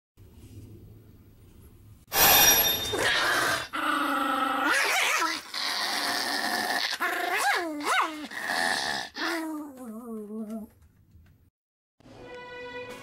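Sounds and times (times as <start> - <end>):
puppy whining and growling: 3.0 - 10.7.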